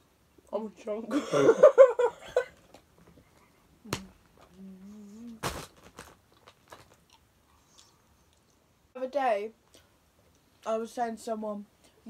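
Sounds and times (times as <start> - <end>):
person humming mmm: 3.8 - 5.4
brief crackle: 5.2 - 7.0.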